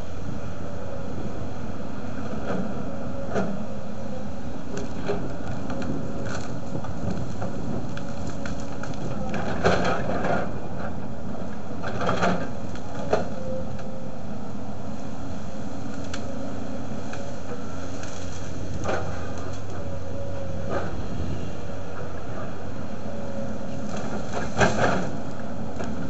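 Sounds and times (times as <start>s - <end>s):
excavator diesel engine running: 0.0s - 26.0s
branches cracking and snapping: 4.7s - 10.5s, 11.8s - 13.9s, 15.5s - 19.9s, 23.5s - 26.0s.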